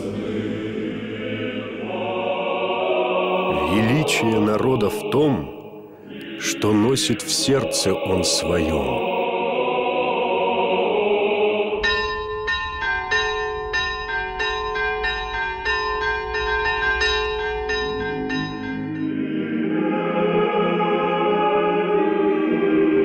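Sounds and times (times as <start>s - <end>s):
choir singing: 0.0s - 12.6s, 17.5s - 23.0s
church bells pealing: 3.4s - 5.3s, 11.8s - 19.3s.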